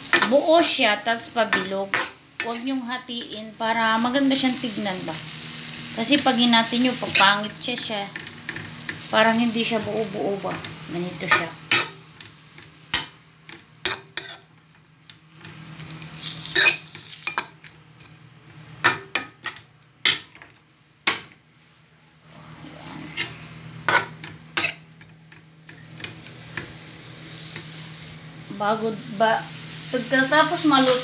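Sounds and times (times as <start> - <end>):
faint sizzle: 0.0 - 31.0
steady low hum: 0.0 - 31.0
metal spoon scraping a wok: 13.8 - 14.5, 16.2 - 17.4, 22.6 - 24.8.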